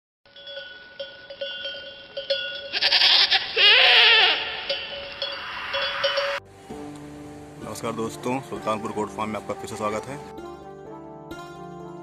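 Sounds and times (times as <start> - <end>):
ringing bell-like tones: 0.3 - 3.0, 4.4 - 6.4
goat bleating: 2.7 - 4.7.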